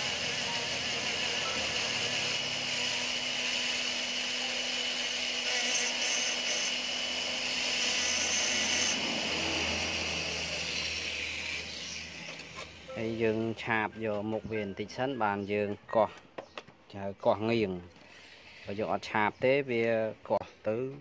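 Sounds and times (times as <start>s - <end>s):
grinding disc whining: 0.0s - 15.8s.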